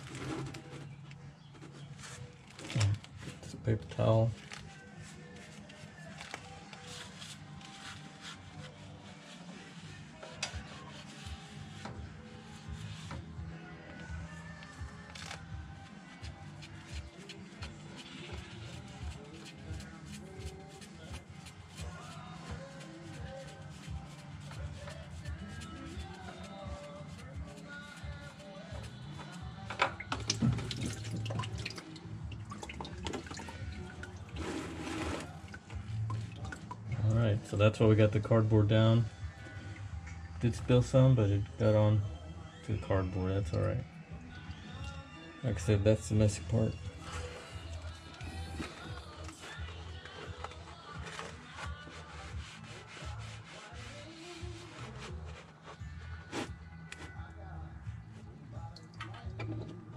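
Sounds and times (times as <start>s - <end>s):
paper towel crinkling: 4.4s - 11.8s, 47.0s - 56.5s
oil dripping and spattering: 30.0s - 34.4s.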